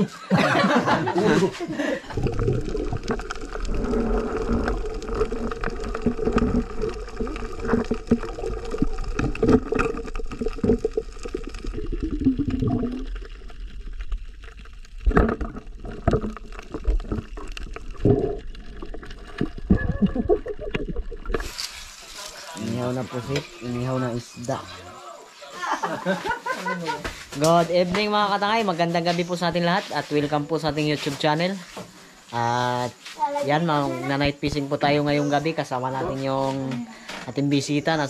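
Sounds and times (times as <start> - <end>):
underwater water gurgling: 0.6 - 24.4
small underwater clicks: 2.2 - 21.8.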